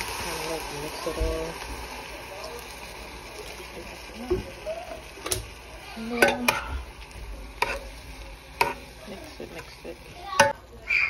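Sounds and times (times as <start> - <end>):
light sizzle: 0.0 - 11.0
spoon scraping a pan: 6.1 - 10.6.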